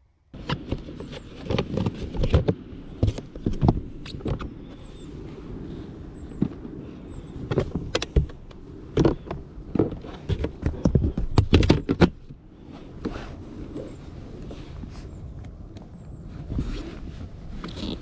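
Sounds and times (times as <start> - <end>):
plastic box knocking and clicking: 9.0 - 12.2.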